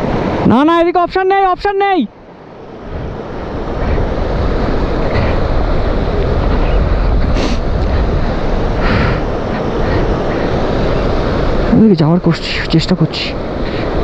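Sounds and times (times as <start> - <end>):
wind rushing over microphone: 0.0 - 14.0.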